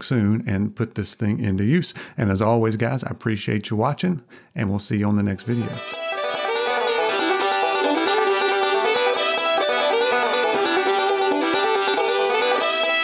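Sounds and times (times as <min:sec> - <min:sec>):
fast-picked banjo tune: 0:05.5 - 0:13.0.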